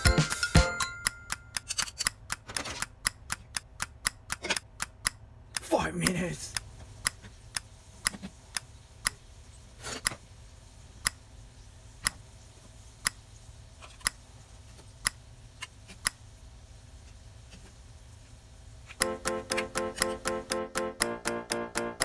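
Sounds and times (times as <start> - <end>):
clock ticking: 0.0 - 9.2, 19.0 - 22.0.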